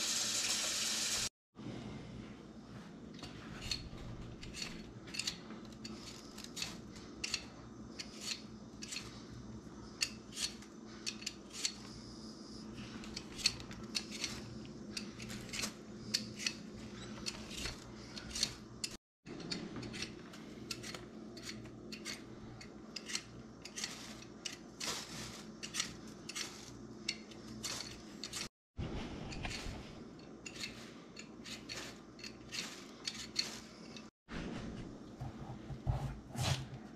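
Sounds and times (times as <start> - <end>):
peeler scraping potato skin: 3.6 - 12.1, 12.8 - 28.5, 29.3 - 34.1.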